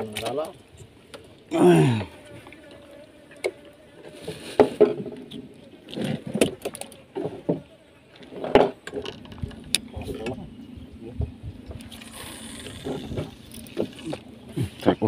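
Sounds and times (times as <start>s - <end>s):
knocks and clatters on wooden boat: 4.6s - 12.0s.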